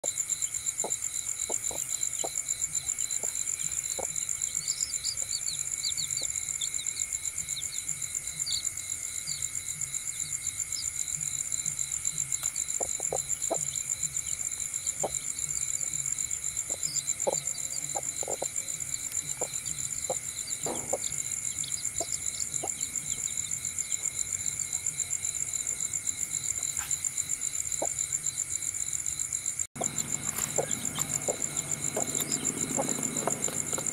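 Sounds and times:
crickets chirping: 0:00.0 - 0:33.9
hen clucking: 0:00.8 - 0:04.3, 0:12.7 - 0:13.8, 0:16.6 - 0:18.6, 0:19.2 - 0:23.4, 0:29.8 - 0:33.8
chicks peeping: 0:01.4 - 0:08.7, 0:12.4 - 0:24.2, 0:29.8 - 0:33.9.

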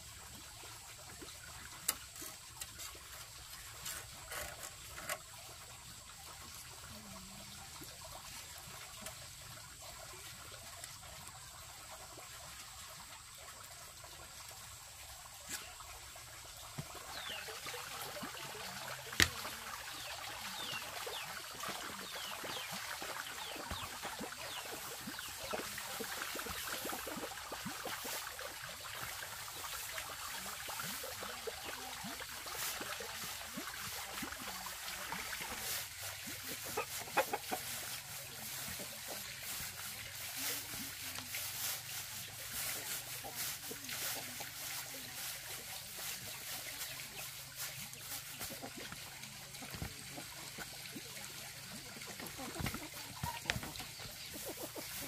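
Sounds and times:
chickens clucking and cheeping: 0:18.6 - 0:27.2, 0:35.5 - 0:40.6, 0:51.8 - 0:55.0.

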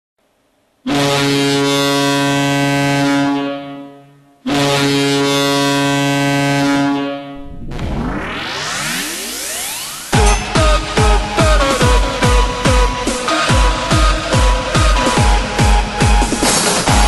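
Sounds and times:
electronic music with rising sweep: 0:07.4 - 0:11.1.

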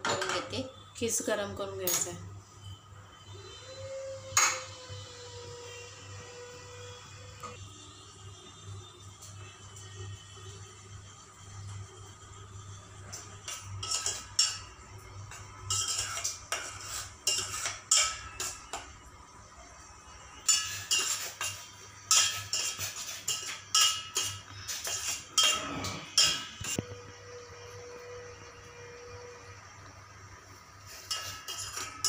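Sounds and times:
metal spoon scraping a pot: 0:13.1 - 0:18.9, 0:20.3 - 0:26.8, 0:30.8 - 0:32.0.

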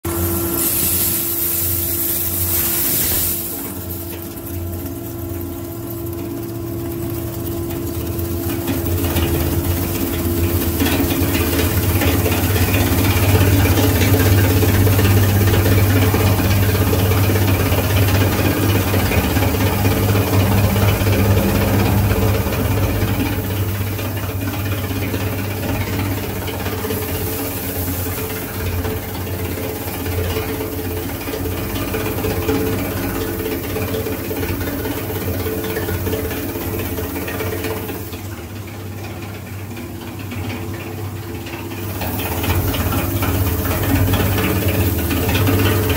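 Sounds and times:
shredder machine hum: 0:00.0 - 0:45.9
metal tabs pouring hiss: 0:00.4 - 0:04.1.

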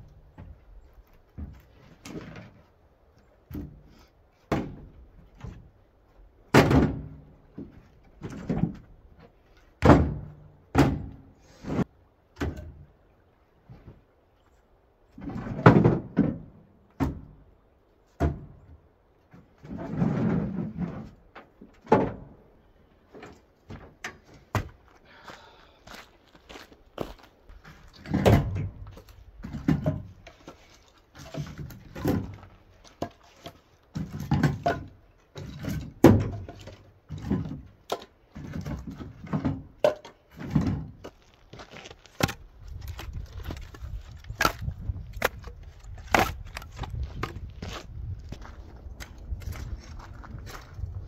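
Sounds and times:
gear and firewood knocking in truck bed: 0:04.5 - 0:05.6, 0:06.5 - 0:09.0, 0:09.8 - 0:11.2, 0:18.2 - 0:18.8, 0:27.6 - 0:41.2.

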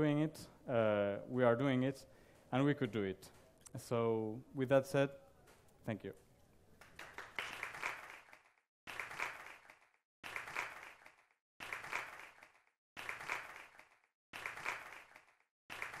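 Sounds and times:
audience applause: 0:06.8 - 0:16.0.

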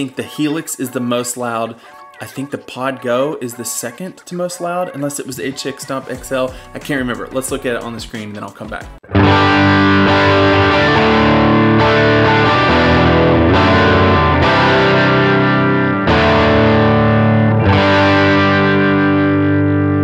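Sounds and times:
overdriven electric guitar chords: 0:09.0 - 0:20.0.

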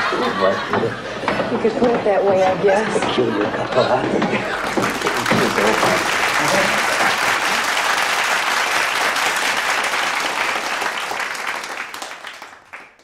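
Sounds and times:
studio audience applause: 0:04.4 - 0:13.0.

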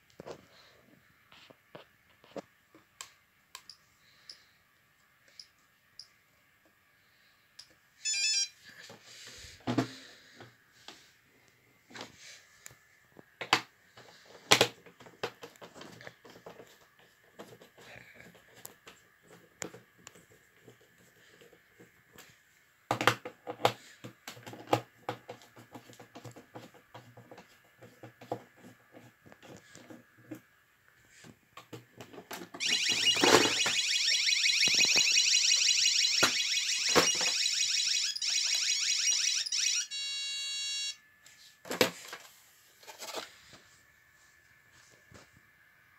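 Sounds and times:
faint steady high tone: 0:07.6 - 0:08.8, 0:32.6 - 0:41.2
warbling alarm siren: 0:32.6 - 0:41.0.

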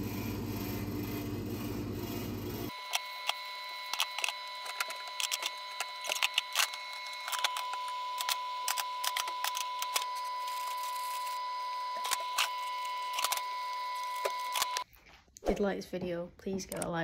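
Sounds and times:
items clicking and knocking: 0:03.9 - 0:11.1.

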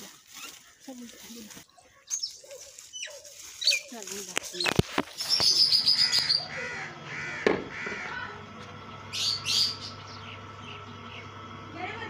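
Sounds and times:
small birds chirping: 0:00.0 - 0:12.0
crow cawing: 0:05.4 - 0:08.4.

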